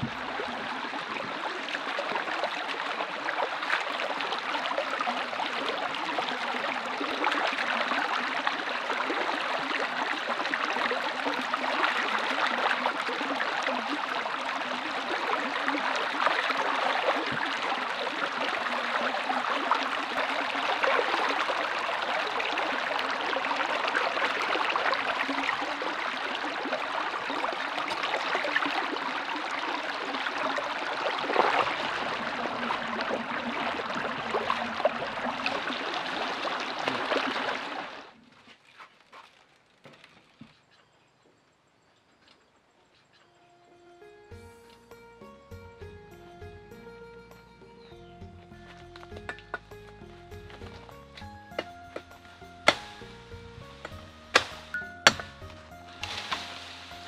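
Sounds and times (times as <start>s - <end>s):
stream babbling over rocks: 0.0s - 38.2s, 53.9s - 57.0s.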